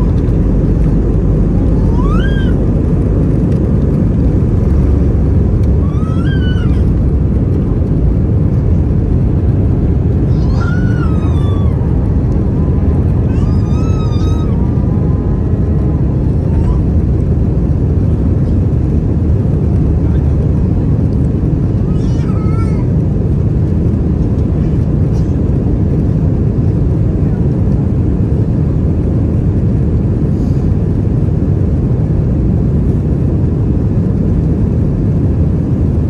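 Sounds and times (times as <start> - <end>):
jet engines and airflow roar: 0.0 - 36.0
high-pitched wailing cries: 1.7 - 2.6, 5.8 - 7.0, 10.3 - 11.9, 13.3 - 14.7.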